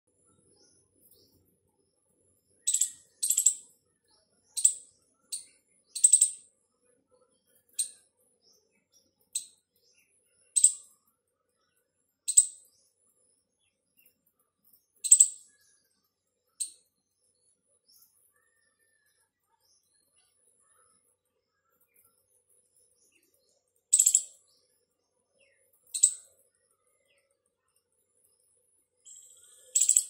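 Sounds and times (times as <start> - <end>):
squirrel chirping: 2.6 - 3.8, 4.4 - 6.6, 7.6 - 8.1, 9.3 - 9.6, 10.4 - 11.0, 12.2 - 12.7, 15.0 - 15.6, 23.8 - 24.5, 25.8 - 26.4, 29.0 - 30.0.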